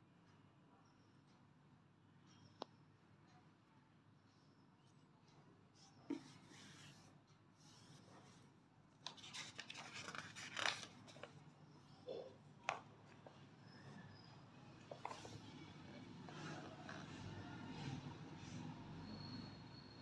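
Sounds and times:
book page rustling: 0:09.0 - 0:11.4, 0:14.9 - 0:15.5.

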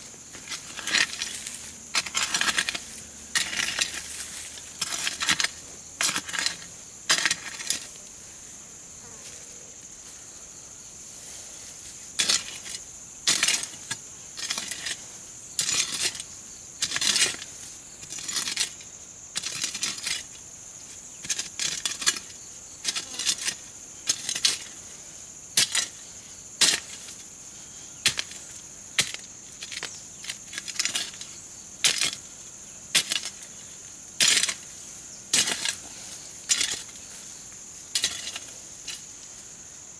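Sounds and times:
high insect buzz: 0:00.0 - 0:39.9
hoe chopping into soil: 0:26.6 - 0:27.2, 0:34.2 - 0:37.0.

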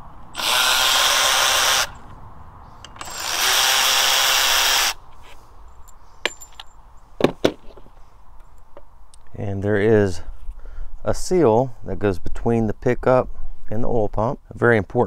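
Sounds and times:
cordless ratchet whirring: 0:00.4 - 0:02.1, 0:02.8 - 0:05.0.

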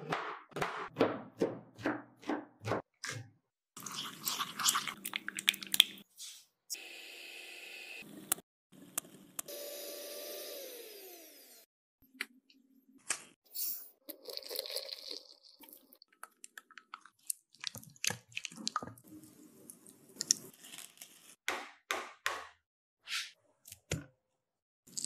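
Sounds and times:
electric hand mixer whirring: 0:09.5 - 0:11.7.

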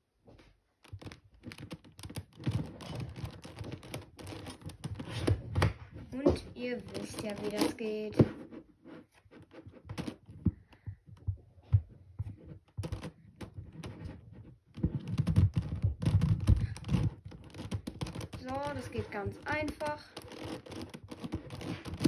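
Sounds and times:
plastic puzzle clicking: 0:00.8 - 0:05.7, 0:06.4 - 0:07.9, 0:14.8 - 0:22.0.

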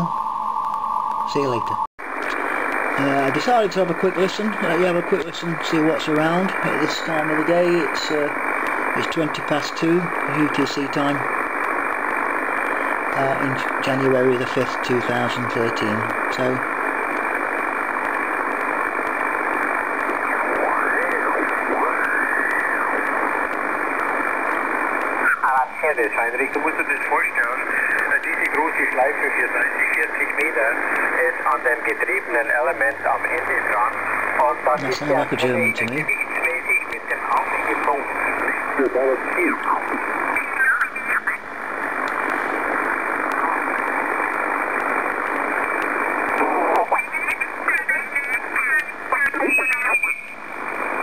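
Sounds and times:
radio static hiss: 0:00.0 - 0:51.0
garbled radio voice: 0:03.0 - 0:11.3, 0:13.1 - 0:16.7, 0:25.2 - 0:41.4, 0:46.4 - 0:50.2.

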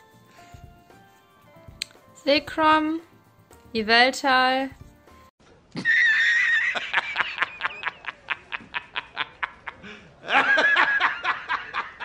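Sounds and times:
man laughing hard: 0:05.8 - 0:12.0.

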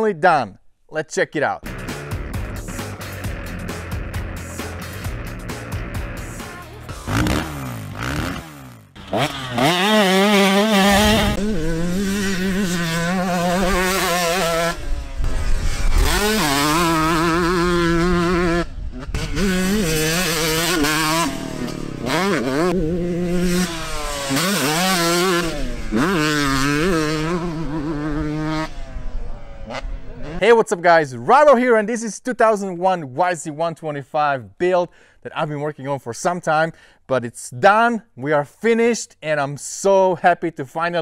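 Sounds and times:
dirt bike engine revving: 0:01.6 - 0:30.4.

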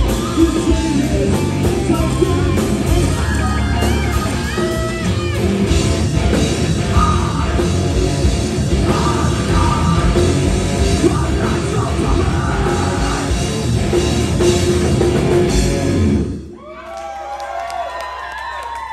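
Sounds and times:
hard rock band playing: 0:00.0 - 0:16.5
crowd cheering and whooping: 0:16.4 - 0:18.9.

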